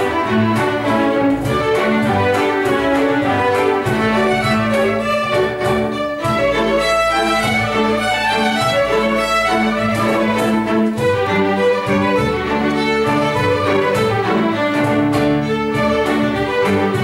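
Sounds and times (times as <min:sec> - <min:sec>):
string orchestra playing hornpipe: 0:00.0 - 0:17.0.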